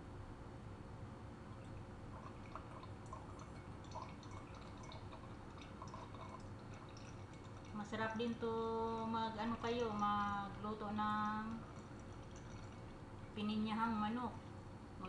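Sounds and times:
syrup dripping into glass jar: 2.2 - 7.9, 8.9 - 13.0.

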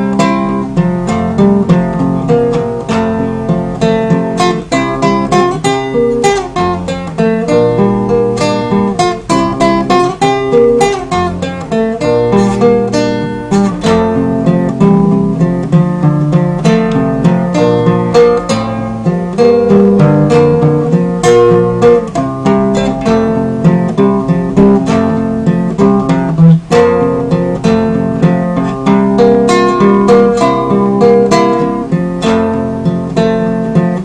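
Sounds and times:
acoustic guitar: 0.0 - 34.0.

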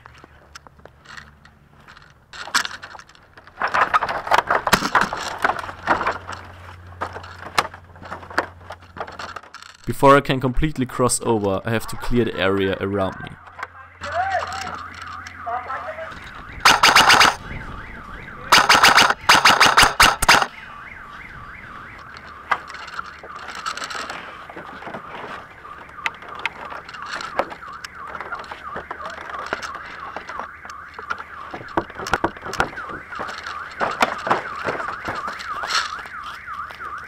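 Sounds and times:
wavering siren-like tone: 13.1 - 37.0
airsoft gun bursts: 16.6 - 17.4, 18.5 - 20.5.

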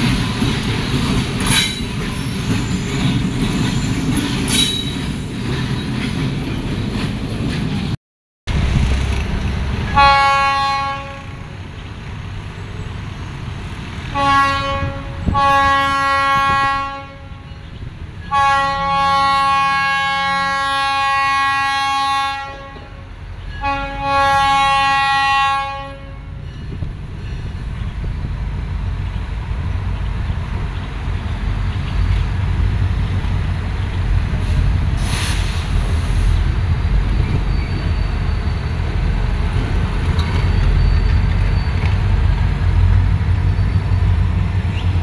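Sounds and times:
diesel and rail rumble: 0.0 - 45.0
locomotive air horn blasts: 9.9 - 11.4, 14.1 - 17.6, 18.3 - 26.4.

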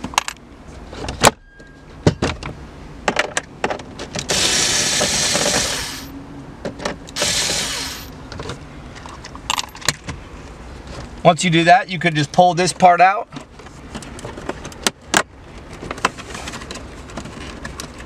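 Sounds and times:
loud hissing bursts: 4.3 - 6.1, 7.2 - 8.1.

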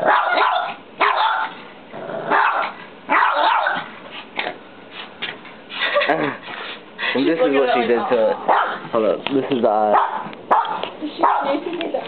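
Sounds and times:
dog barking: 0.0 - 1.6, 2.3 - 3.9, 8.0 - 8.9, 9.9 - 11.6.

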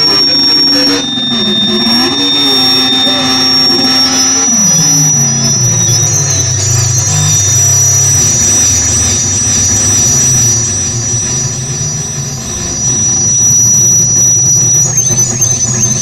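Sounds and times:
low droning hum: 0.0 - 16.0
piercing high whistle: 0.0 - 16.0
warbling electronic chirps: 0.0 - 16.0.

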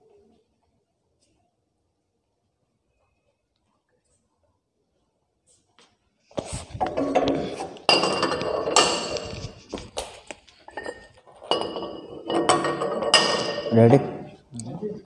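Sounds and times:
weight plates clanking on bar: 6.9 - 9.5, 10.8 - 14.3.

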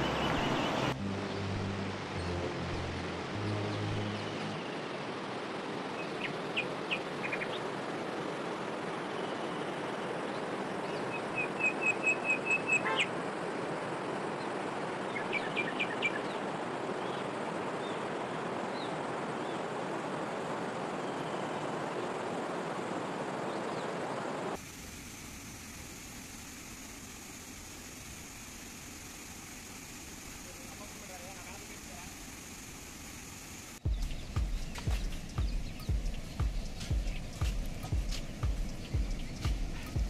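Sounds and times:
birds chirping: 0.0 - 1.4, 3.0 - 13.2, 14.2 - 19.8, 33.8 - 40.0
river water flowing: 0.0 - 24.7.

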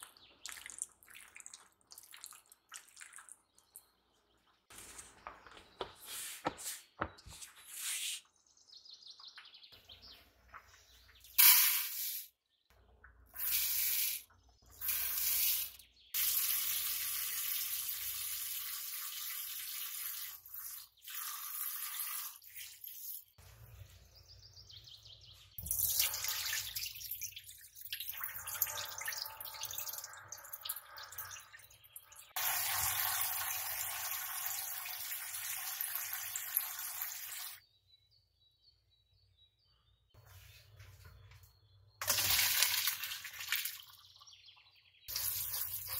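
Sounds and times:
water dripping: 0.0 - 4.0, 25.6 - 37.6, 42.0 - 45.9
tap water running into sink: 32.4 - 37.6.

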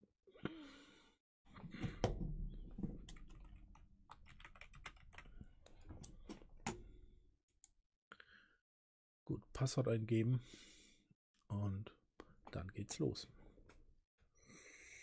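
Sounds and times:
typing on computer keyboard: 3.1 - 5.5.

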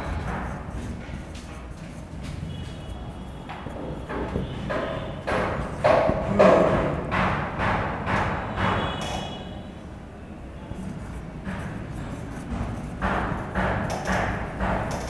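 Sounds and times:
marker writing on whiteboard: 0.0 - 15.0.

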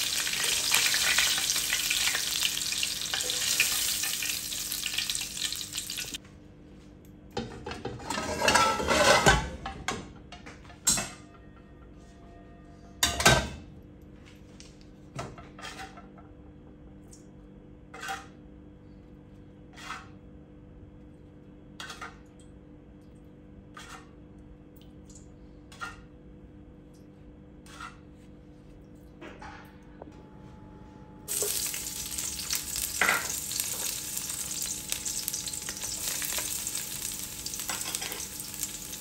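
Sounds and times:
wok clanking on metal grate: 0.1 - 5.1, 7.4 - 10.2, 35.8 - 38.8.

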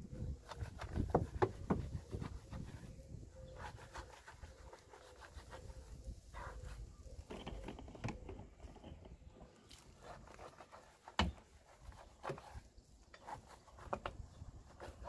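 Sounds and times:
wet rubbing of wheel scrubbing: 0.5 - 6.9.

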